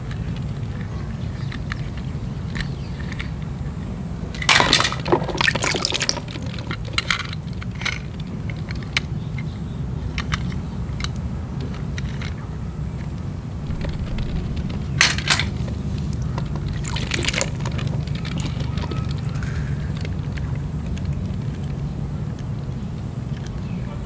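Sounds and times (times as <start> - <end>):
plastic toys clicking: 0.0 - 3.6, 4.3 - 13.2, 16.4 - 23.7
water splashing in a basin: 4.5 - 7.1, 13.7 - 19.3
steady low hum: 12.8 - 22.2.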